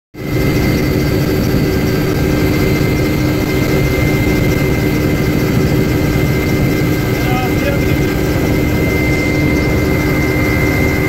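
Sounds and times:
helicopter engine and rotor: 0:00.2 - 0:11.0.

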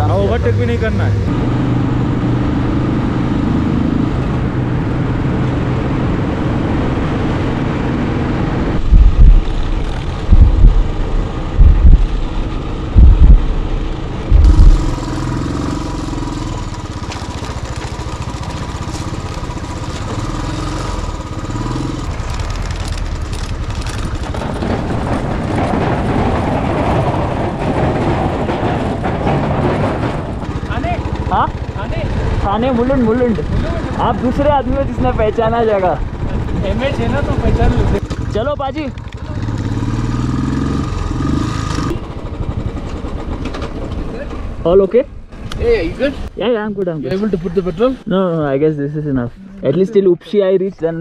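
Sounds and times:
steady rush of noise: 0:04.4 - 0:16.8
low thumps on microphone: 0:08.8 - 0:12.3, 0:12.9 - 0:13.6, 0:14.3 - 0:15.0
motorcycle engine running: 0:08.8 - 0:26.5, 0:29.9 - 0:44.8.

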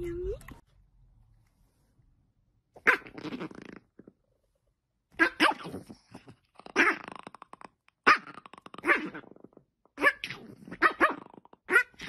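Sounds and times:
dog growling and barking: 0:02.8 - 0:04.2, 0:05.1 - 0:12.0.

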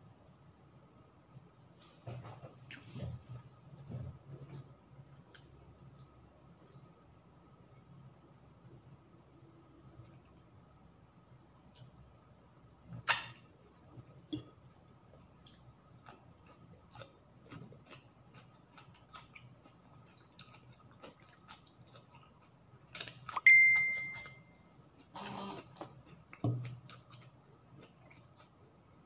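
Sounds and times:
person eating mouth noises: 0:25.0 - 0:26.2.

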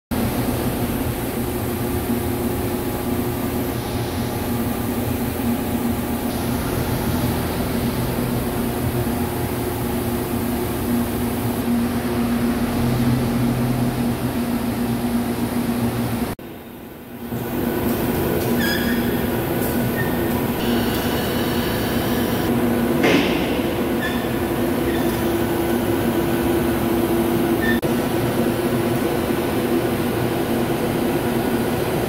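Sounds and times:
industrial machinery hum: 0:00.1 - 0:32.0
steady machine tones: 0:17.2 - 0:22.8.

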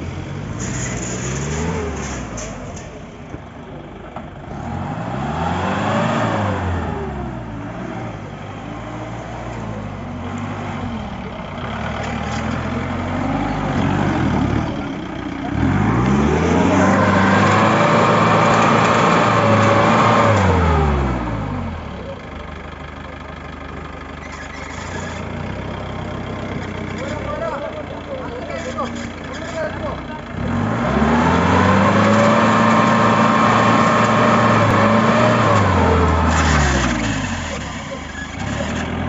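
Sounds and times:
car engine revving hard: 0:04.5 - 0:09.5, 0:15.4 - 0:21.8, 0:29.8 - 0:39.0.

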